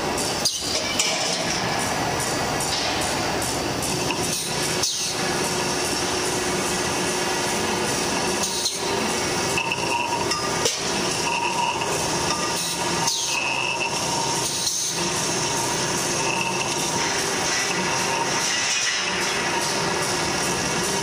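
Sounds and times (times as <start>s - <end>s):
metallic clanks and knocks: 0.5s - 4.4s
circular saw cutting steel: 3.4s - 21.0s.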